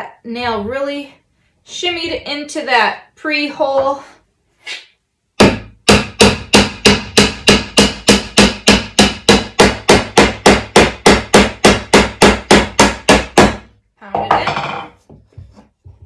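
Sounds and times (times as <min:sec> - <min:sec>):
hammer striking nail into wood: 0:05.4 - 0:13.7.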